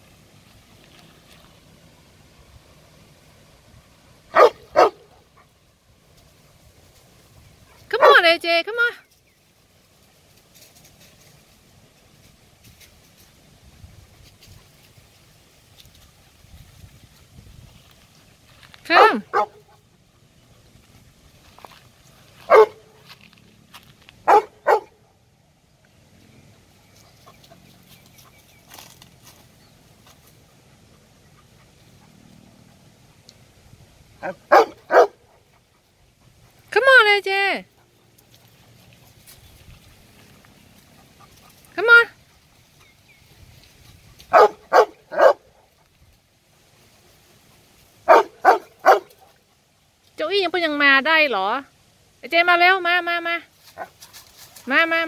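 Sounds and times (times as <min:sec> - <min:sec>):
dog barking: 0:04.3 - 0:05.2, 0:18.9 - 0:19.8, 0:22.5 - 0:22.9, 0:24.2 - 0:25.0, 0:34.2 - 0:35.4, 0:44.3 - 0:45.5, 0:48.1 - 0:49.3
dog yelping: 0:34.2 - 0:35.2, 0:44.3 - 0:45.4, 0:48.1 - 0:49.1.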